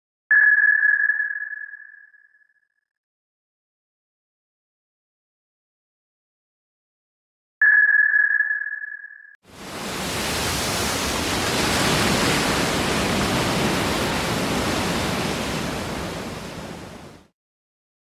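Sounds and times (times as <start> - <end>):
steady rushing noise: 9.5 - 17.3.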